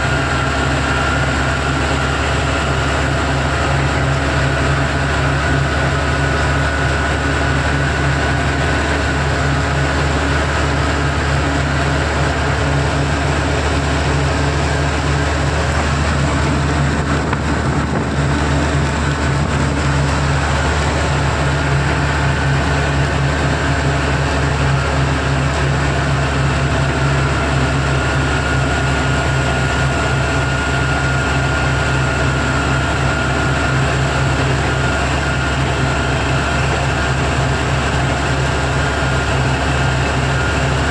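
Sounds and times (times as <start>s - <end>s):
diesel engine droning: 0.0s - 40.9s
road and wind noise: 0.0s - 40.9s.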